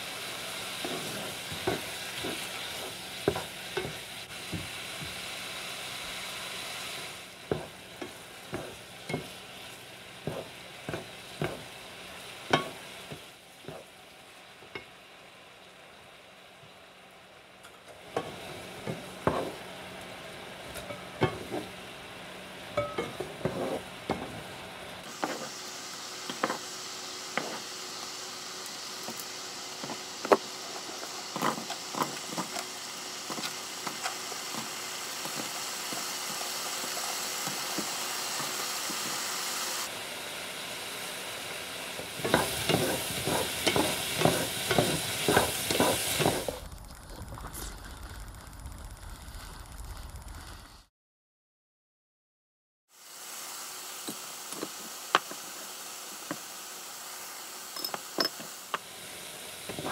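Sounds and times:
food sizzling in a pan: 0.0s - 46.7s, 52.9s - 59.9s
spatulas scraping a pan: 0.6s - 5.2s, 7.5s - 9.4s, 10.2s - 11.7s, 18.2s - 19.6s, 20.8s - 21.8s, 22.8s - 24.4s, 27.4s - 27.7s, 42.0s - 46.6s.

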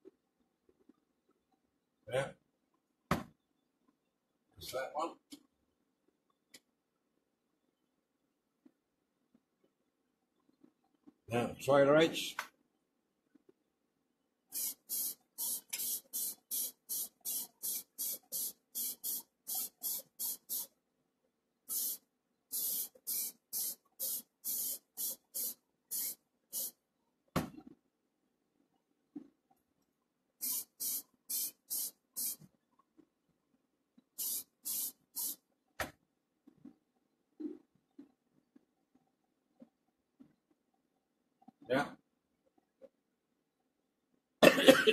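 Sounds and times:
spray paint hissing bursts: 14.5s - 20.7s, 21.7s - 26.8s, 30.4s - 32.4s, 34.2s - 35.4s.

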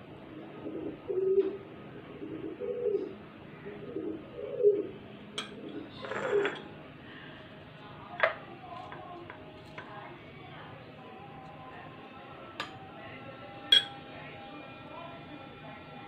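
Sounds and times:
pigeon cooing: 0.0s - 7.4s
spoon clinking against glass: 13.7s - 14.0s.

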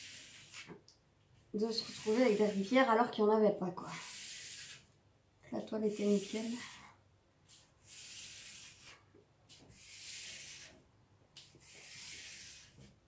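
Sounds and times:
hands rubbing plastic film: 7.5s - 10.8s.

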